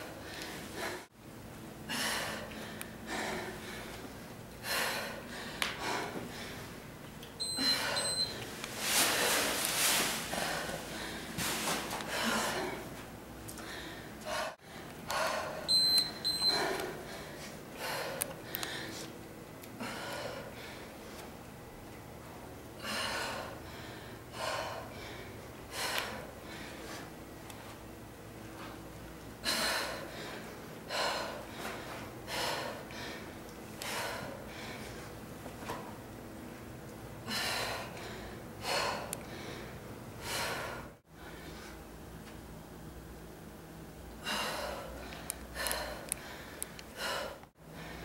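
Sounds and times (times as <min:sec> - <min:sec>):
heavy exercise breathing: 0:00.0 - 0:01.1, 0:01.8 - 0:06.8, 0:07.4 - 0:21.3, 0:22.8 - 0:27.2, 0:29.4 - 0:35.2, 0:37.2 - 0:41.8, 0:44.1 - 0:48.0
short high timer beeps: 0:15.7 - 0:16.6.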